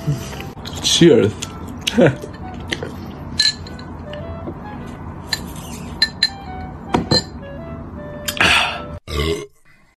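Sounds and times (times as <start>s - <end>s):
background music: 0.0s - 9.0s
glass clinking with metal straw: 3.4s - 4.0s, 5.3s - 7.4s.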